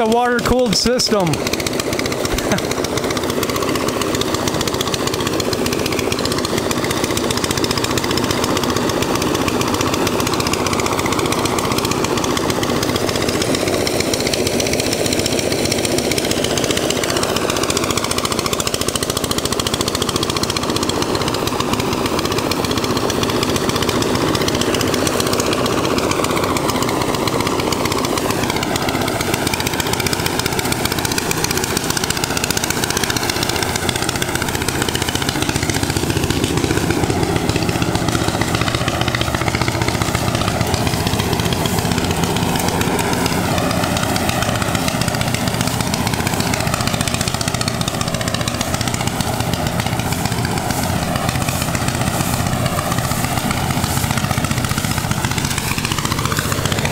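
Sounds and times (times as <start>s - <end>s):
rice thresher engine running: 0.0s - 56.9s.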